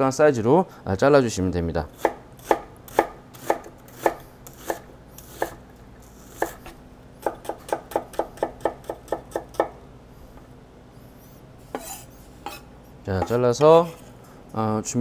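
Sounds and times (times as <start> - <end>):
knife chopping onion on wooden board: 1.9 - 5.6, 6.3 - 9.8.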